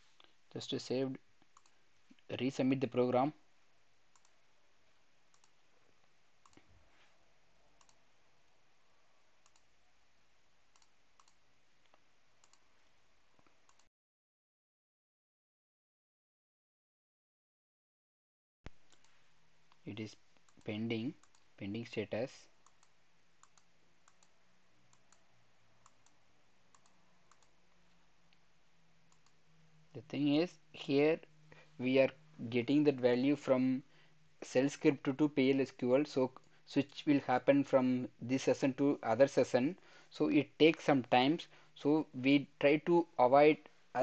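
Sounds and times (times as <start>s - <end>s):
low steady hiss: 0.0s - 13.9s, 18.7s - 44.0s
computer mouse clicks: 1.4s - 1.8s, 4.1s - 4.4s, 5.3s - 5.6s, 6.4s - 6.8s, 7.8s - 8.6s, 9.4s - 9.7s, 10.7s - 12.6s, 13.4s - 13.9s, 18.9s - 19.8s, 20.4s - 21.5s, 22.6s - 25.2s, 25.8s - 28.4s, 29.1s - 29.4s.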